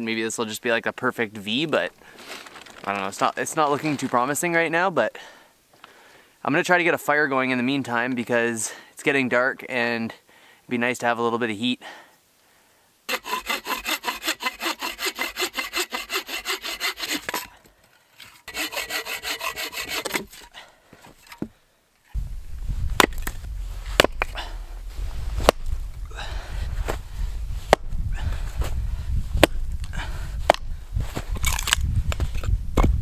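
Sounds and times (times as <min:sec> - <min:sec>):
hand saw cutting wood: 0:13.1 - 0:17.6, 0:18.2 - 0:20.6
steady low rumble: 0:22.2 - 0:33.0.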